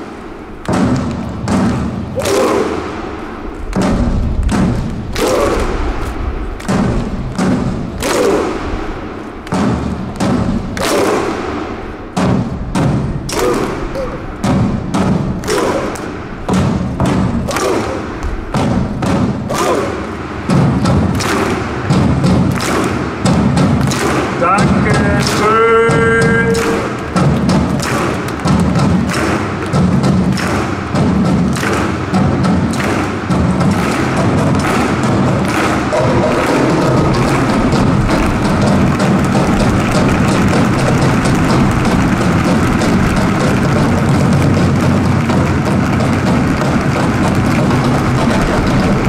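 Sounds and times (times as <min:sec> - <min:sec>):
music with slow drum beat: 0:23.1 - 0:49.0.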